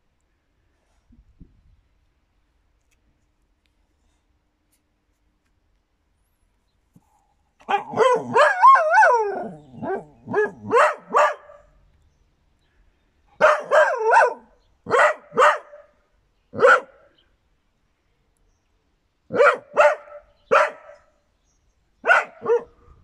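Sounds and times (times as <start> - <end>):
dog howling and yipping: 7.7 - 11.3.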